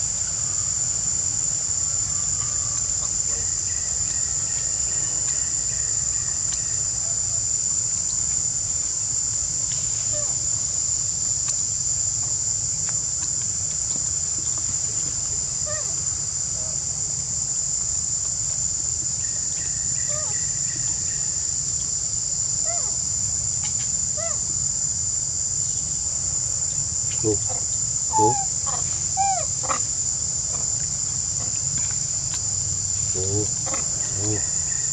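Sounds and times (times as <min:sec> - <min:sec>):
insects droning: 0:00.0 - 0:34.9
young monkeys squeaking: 0:28.1 - 0:29.5.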